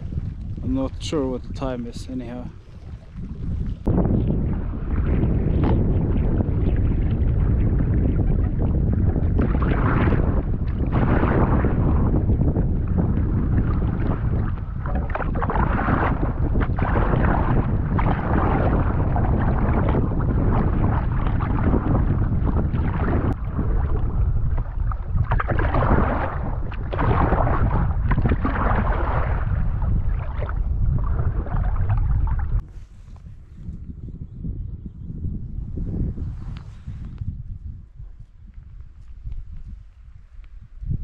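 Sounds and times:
water splashing: 0.0s - 32.6s
wind buffeting microphone: 0.0s - 41.0s.

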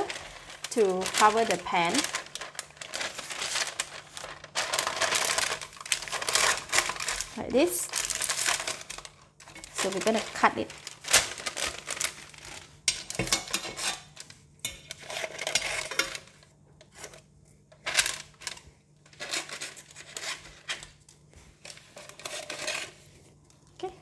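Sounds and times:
shears cutting paper: 0.0s - 9.0s, 9.6s - 12.5s
baking paper crinkling: 0.0s - 24.0s.

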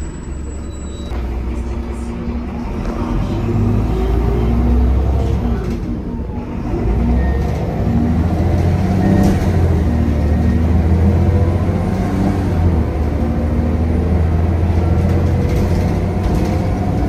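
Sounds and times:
bus diesel engine: 0.0s - 17.0s.

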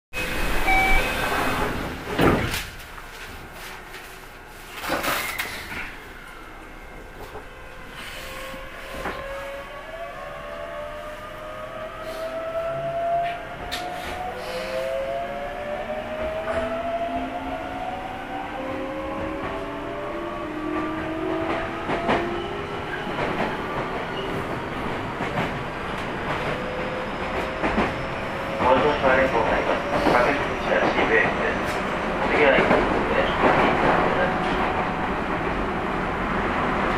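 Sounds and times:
train sliding doors thudding shut: 0.2s - 3.9s, 4.7s - 6.0s, 13.2s - 14.7s.

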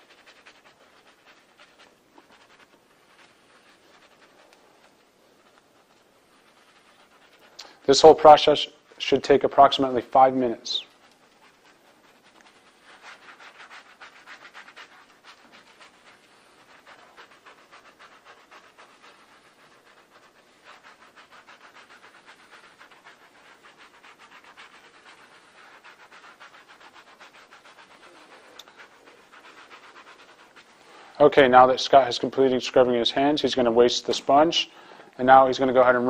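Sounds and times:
scrub brush scrubbing hands: 0.0s - 36.0s.

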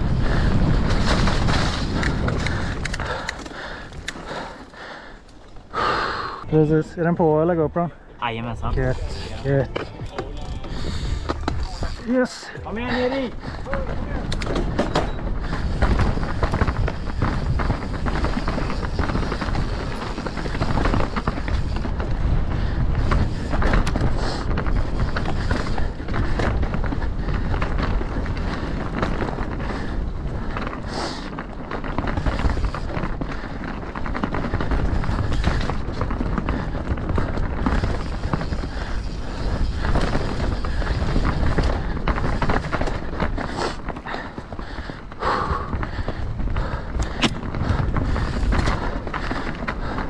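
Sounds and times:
wind on microphone: 0.0s - 3.3s
bike rattles and knocks: 0.0s - 5.7s, 8.3s - 50.0s.

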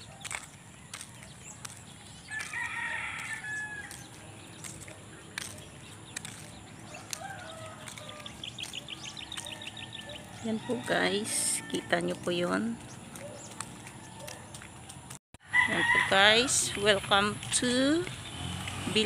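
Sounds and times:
rooster crowing: 2.3s - 3.9s, 15.4s - 16.2s.

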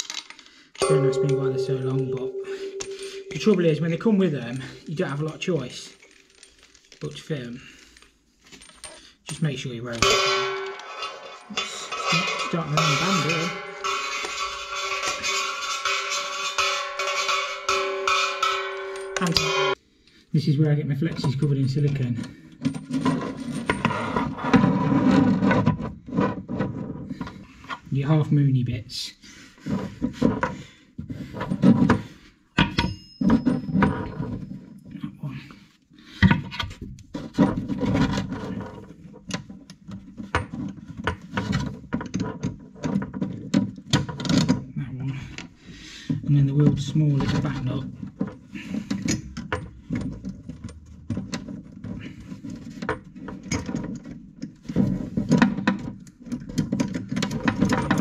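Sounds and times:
sharp metal clink: 0.8s - 3.9s, 9.4s - 19.8s
braided hoses jostling: 2.8s - 19.8s.

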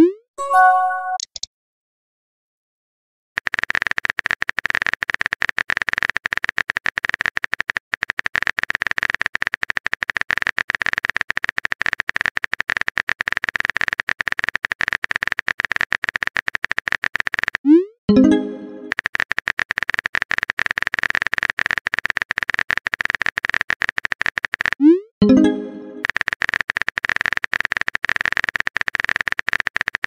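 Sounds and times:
keyboard typing clicks: 0.4s - 1.5s.

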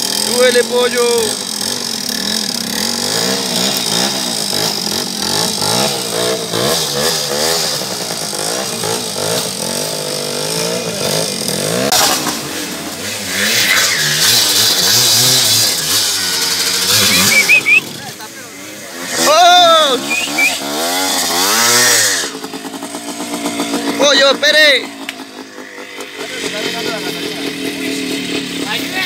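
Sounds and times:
motorcycle engine revving: 0.0s - 29.0s
short rising whine: 17.0s - 17.8s.

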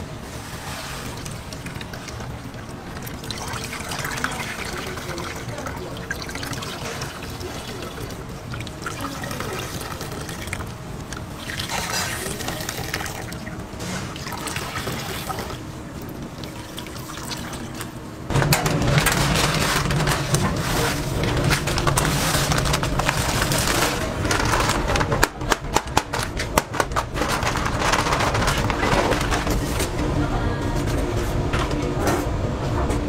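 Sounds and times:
thick liquid pouring: 0.4s - 18.0s
granules poured into steel tub: 18.4s - 25.2s, 26.9s - 29.7s.

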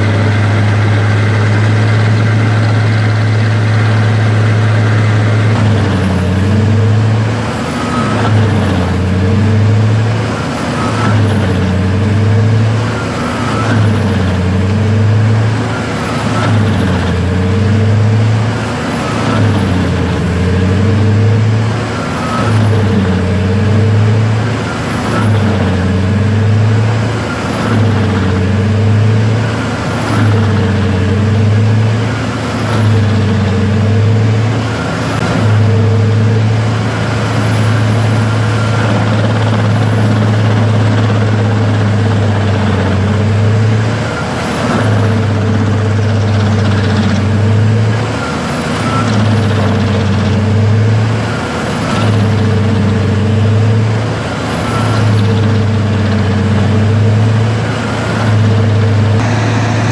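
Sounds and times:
diesel engine running hard: 0.0s - 59.9s
wood chipper chipping log: 0.0s - 59.9s
high whine: 59.2s - 59.9s.

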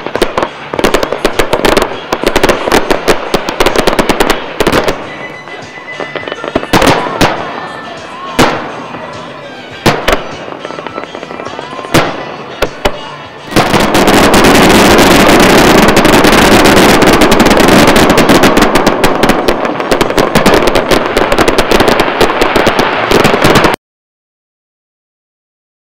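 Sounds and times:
fireworks bangs and crackling: 0.0s - 23.8s.

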